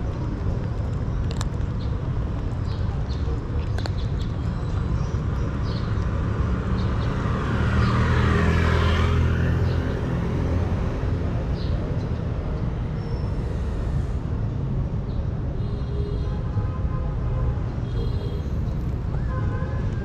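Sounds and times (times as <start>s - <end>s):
motor vehicle passing: 6.0s - 14.8s.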